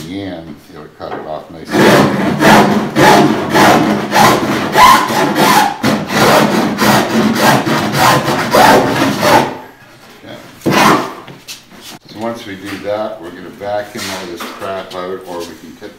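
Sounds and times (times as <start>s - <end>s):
hand file rasping: 1.7s - 9.5s.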